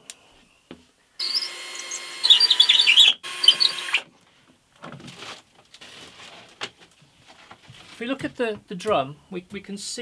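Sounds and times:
cordless drill whining: 0:01.2 - 0:04.1.

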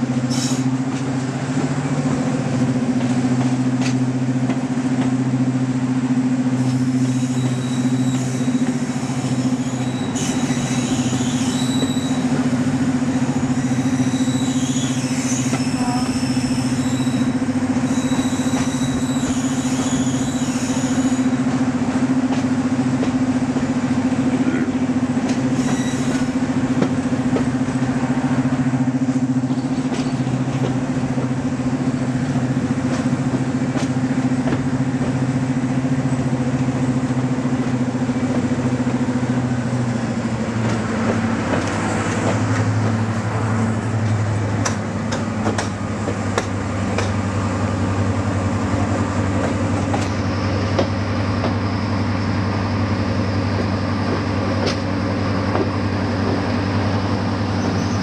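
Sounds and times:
diesel locomotive engine drone: 0:00.0 - 0:58.0
faint high squeal: 0:06.9 - 0:12.3, 0:13.4 - 0:21.4
wheels clicking on rails: 0:39.9 - 0:47.3.

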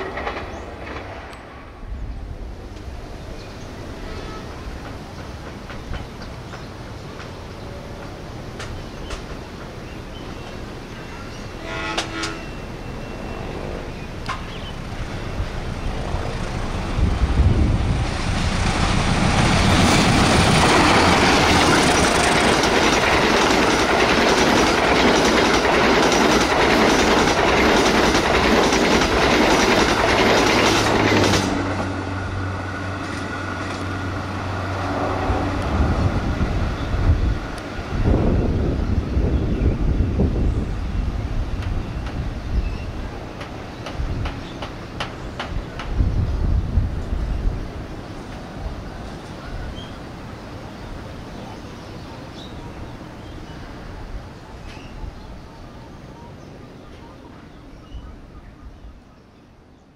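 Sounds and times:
train wheels clattering over rails: 0:00.0 - 0:01.4, 0:04.8 - 0:10.0, 0:17.8 - 0:32.2, 0:43.3 - 0:46.0.

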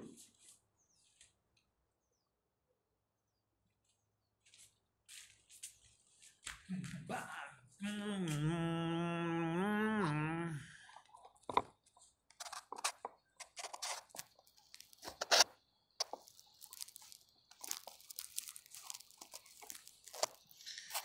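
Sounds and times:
crunching and crinkling: 0:10.9 - 0:21.0.

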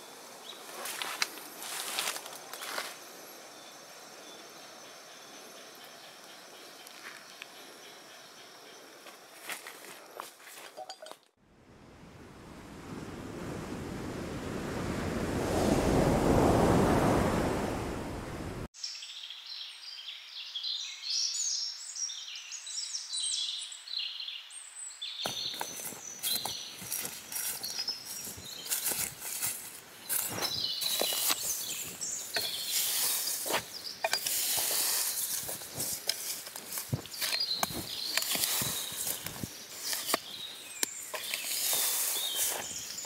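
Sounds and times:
small birds chirping: 0:18.8 - 0:43.0.

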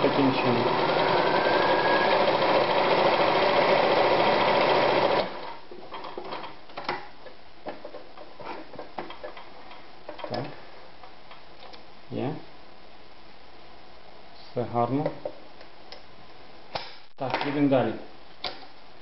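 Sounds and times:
sewing machine stitching: 0:00.0 - 0:05.6.

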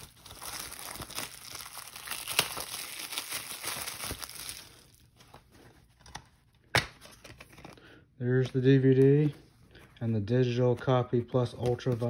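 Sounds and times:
plastic shrink-wrap crinkling: 0:00.0 - 0:05.4.

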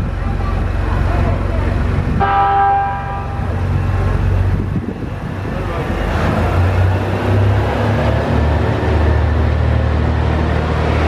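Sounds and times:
diesel engine rumble: 0:00.0 - 0:11.0
train horn chord: 0:02.2 - 0:03.5.

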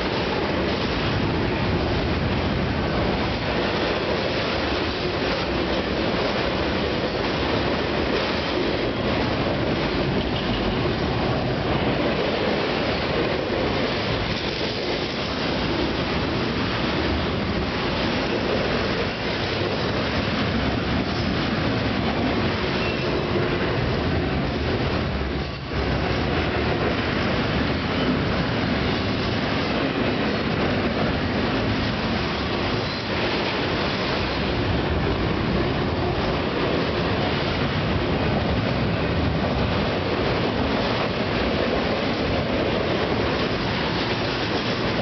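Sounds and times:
freight train wheels on rail: 0:00.0 - 0:45.0.

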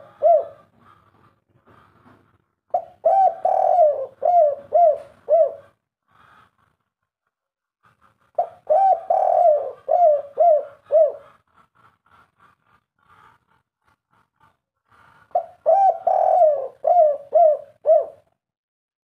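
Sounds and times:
dove cooing: 0:00.0 - 0:01.2, 0:02.7 - 0:05.8, 0:08.3 - 0:11.4, 0:15.3 - 0:18.4.

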